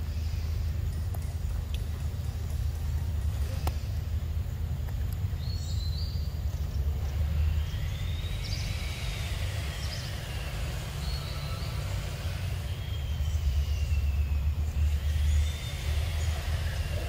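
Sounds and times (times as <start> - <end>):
low background rumble: 0.0 - 17.0
faint long whines: 7.0 - 17.0.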